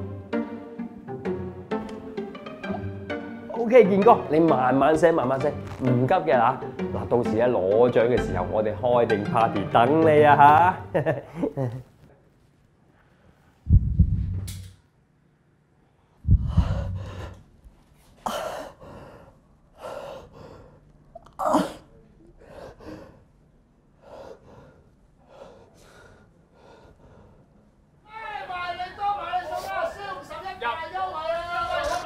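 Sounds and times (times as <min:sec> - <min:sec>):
heavy low thumps: 0:13.7 - 0:14.6, 0:16.2 - 0:17.4
man gasping and groaning in pain: 0:16.3 - 0:17.4, 0:18.2 - 0:23.2.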